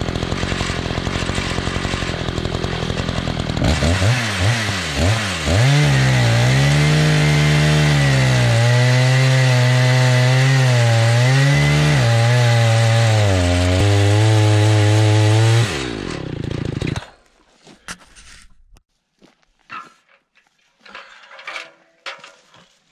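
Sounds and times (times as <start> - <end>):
chainsaw cutting through log: 0.0 - 17.2.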